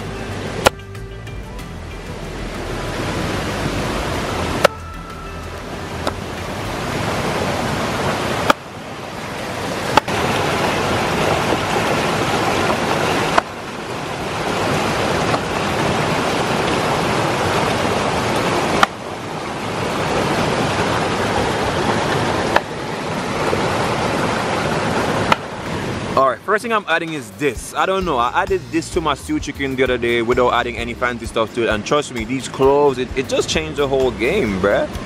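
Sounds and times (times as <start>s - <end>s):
stream rushing over rocks: 1.6s - 29.2s.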